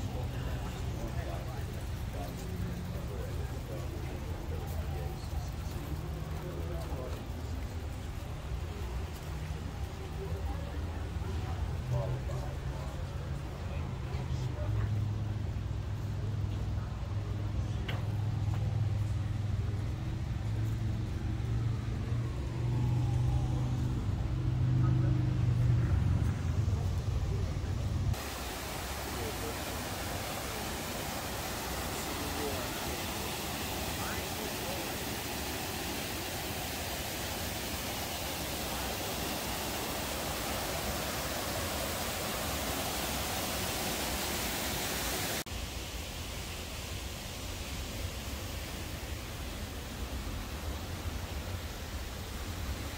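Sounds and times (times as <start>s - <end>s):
water cascading over stone: 0.0s - 14.2s, 28.1s - 52.9s
dull hiss: 0.0s - 52.9s
low engine rumble: 0.0s - 52.9s.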